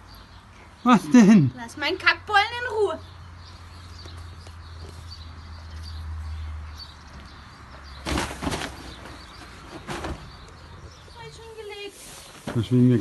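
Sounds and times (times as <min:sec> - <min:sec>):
hay and fabric bag rustling: 0:11.6 - 0:12.9.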